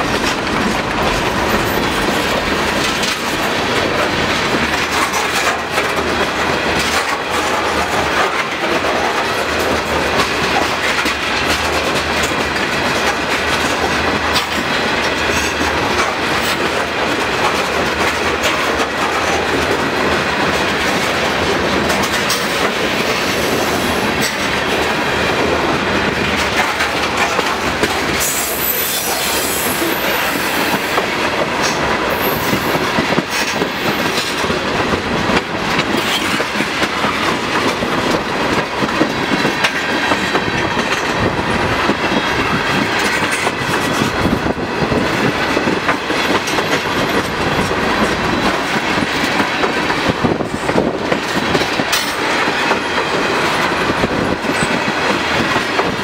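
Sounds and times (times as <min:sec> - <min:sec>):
freight train rumble: 0:00.0 - 0:56.0
steel wheels clicking over rail joints: 0:00.0 - 0:56.0
high wheel squeal: 0:28.2 - 0:30.9.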